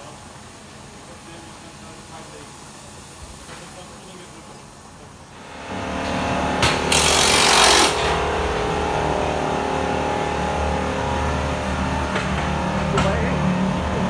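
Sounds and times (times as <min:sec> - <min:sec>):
steady mechanical hum: 0:00.0 - 0:14.0
power tool running: 0:05.3 - 0:14.0.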